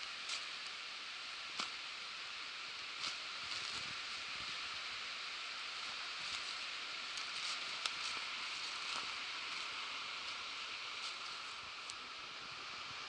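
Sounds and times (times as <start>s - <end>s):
forest background hiss: 0.0s - 13.0s
footsteps on dry leaves: 5.8s - 11.8s
twigs crackling: 6.2s - 12.1s.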